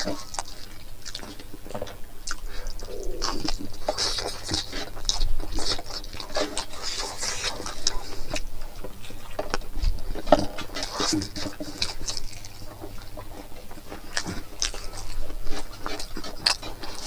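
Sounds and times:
person chewing food: 0.0 - 17.0
wet mouth clicks: 2.2 - 4.1.

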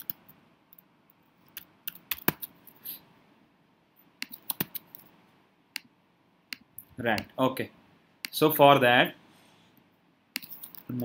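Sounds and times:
keyboard and mouse clicks: 0.0 - 2.8, 4.2 - 5.1, 5.7 - 5.9, 10.3 - 11.0.

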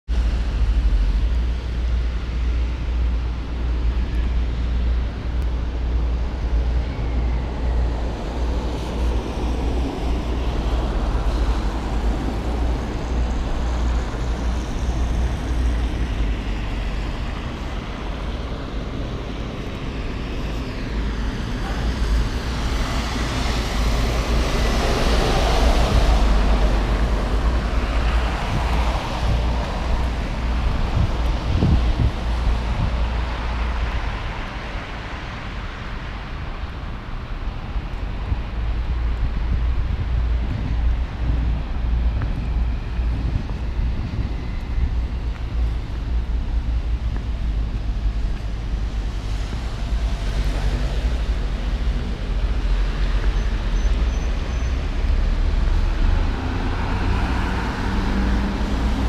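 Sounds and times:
traffic on wet street: 0.1 - 59.0
wind rumble on microphone: 0.1 - 59.0
vehicle passing: 54.7 - 59.0.

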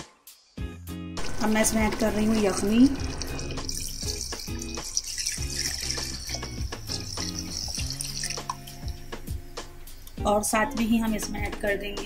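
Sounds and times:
stock pouring and splashing into pot: 1.2 - 9.4.

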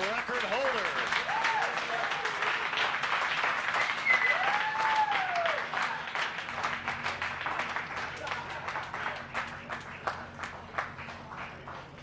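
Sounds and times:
crowd cheering: 0.0 - 12.0
crowd clapping: 0.0 - 12.0
person whooping: 1.3 - 1.8, 4.1 - 6.0.

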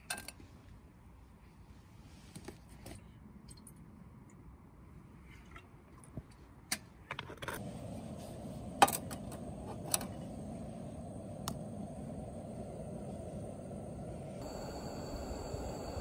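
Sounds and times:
steady low rushing noise: 7.6 - 16.0.

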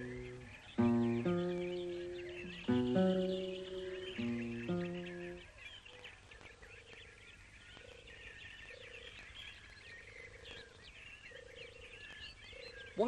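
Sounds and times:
dense high chirping: 0.0 - 5.4
low pulsing croaks: 0.0 - 5.4
plucked musical notes: 0.0 - 5.4.

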